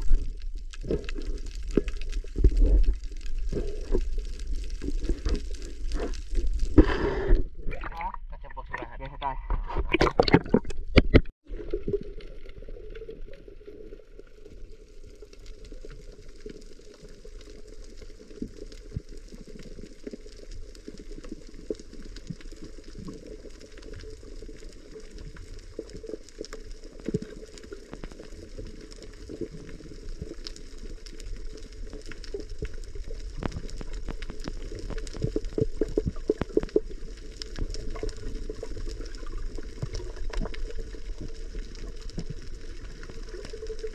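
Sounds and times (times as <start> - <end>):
crackling clicks: 0.0 - 8.8, 14.6 - 43.9
water splashing: 0.0 - 8.9, 9.5 - 14.5
muffled underwater hiss: 0.0 - 9.2.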